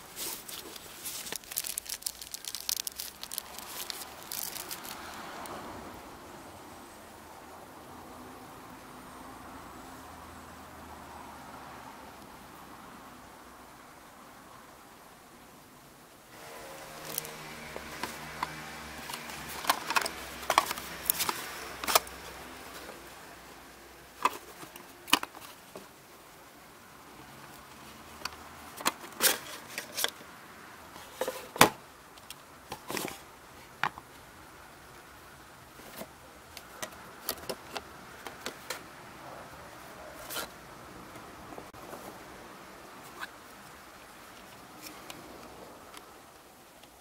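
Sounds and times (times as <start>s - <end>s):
light packaging rustling: 0.0s - 5.5s, 16.9s - 23.1s.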